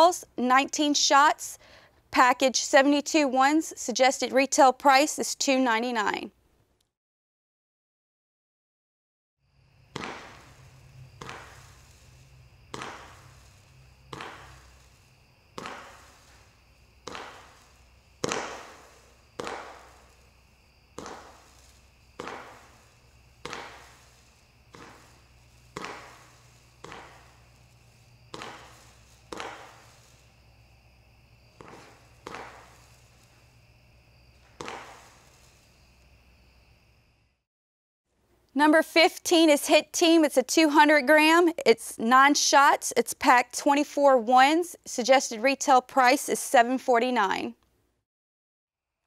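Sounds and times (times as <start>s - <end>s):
firework shots popping: 9.8s - 36.1s.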